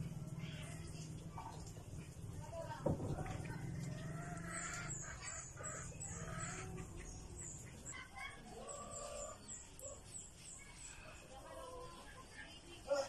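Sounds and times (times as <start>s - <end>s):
bird chirping: 3.2s - 13.0s.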